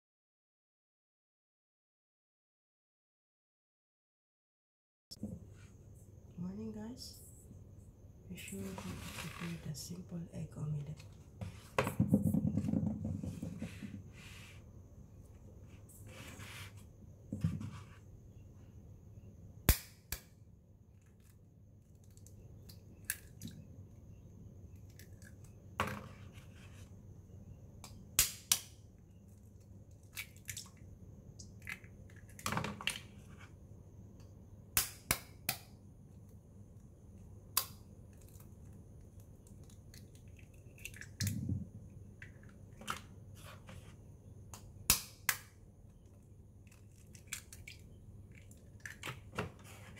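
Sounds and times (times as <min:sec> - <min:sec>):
eggshells cracking on metal whisk: 0:39.5 - 0:41.3.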